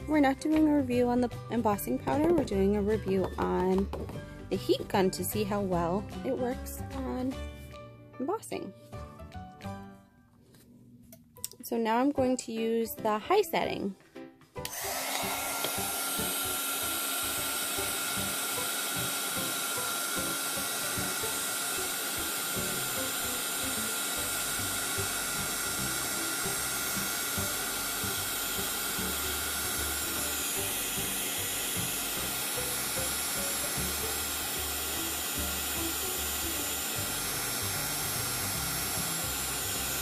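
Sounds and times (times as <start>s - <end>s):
heat gun blowing: 14.6s - 40.0s.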